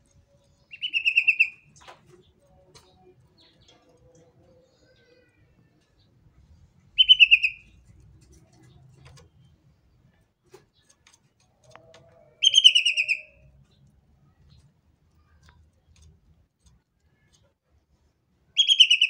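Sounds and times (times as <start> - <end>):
bird singing rapid falling notes: 0.5 - 5.4, 6.9 - 7.9, 12.4 - 13.8, 18.6 - 19.0.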